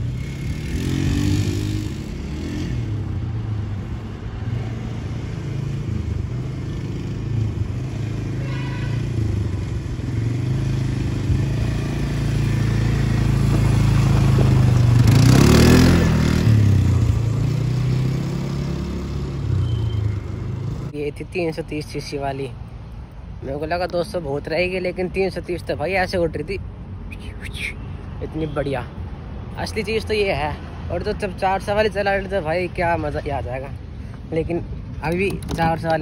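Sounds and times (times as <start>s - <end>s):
quad bike engine running: 6.3s - 20.8s.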